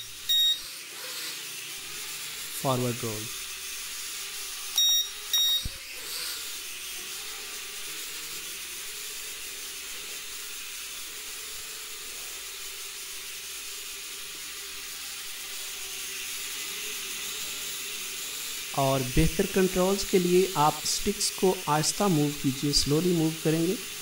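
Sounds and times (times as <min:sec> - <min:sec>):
drone propellers buzzing: 0:00.0 - 0:24.0
short high beep: 0:04.8 - 0:05.7.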